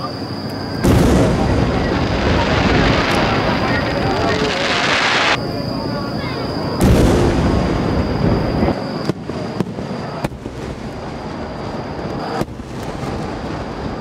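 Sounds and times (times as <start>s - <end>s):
deep firework boom: 0.8s - 5.4s, 6.7s - 14.0s
sharp firework cracks: 0.8s - 5.4s, 9.0s - 14.0s.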